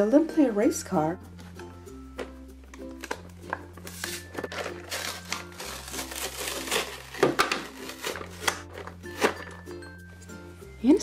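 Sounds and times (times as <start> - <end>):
plastic blister pack crinkling: 2.8 - 9.6
sharp plastic cracks: 6.0 - 9.4.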